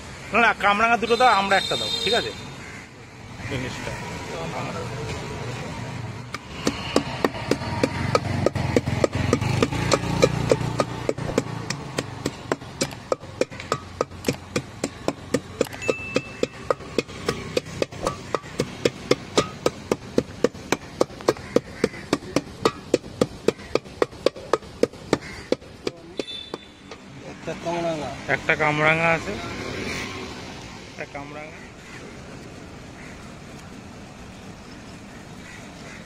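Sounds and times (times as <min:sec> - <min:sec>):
wooden stick pounding in metal pot: 0:06.3 - 0:27.1.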